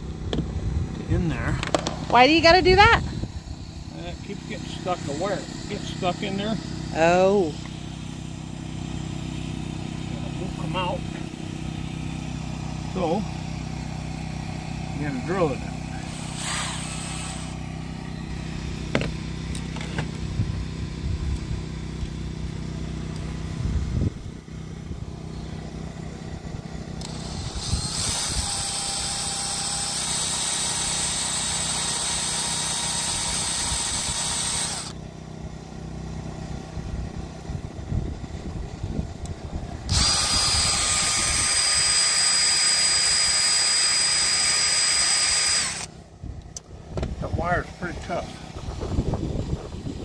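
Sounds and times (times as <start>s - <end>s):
engine hum: 0.0s - 50.0s
cordless drill running: 2.1s - 10.0s, 14.8s - 19.1s, 27.0s - 35.0s, 39.8s - 46.0s.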